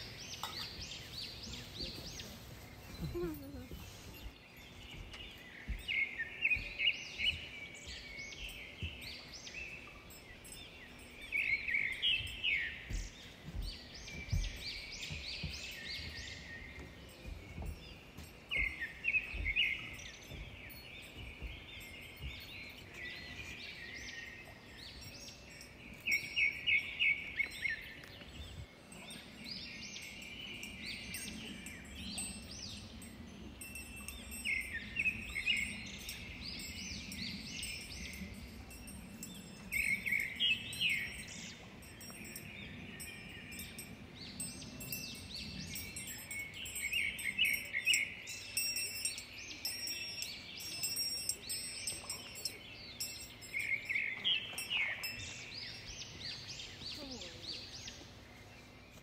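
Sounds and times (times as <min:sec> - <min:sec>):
small birds chirping: 0:00.0 - 0:59.0
faint low thumps: 0:12.1 - 0:23.0.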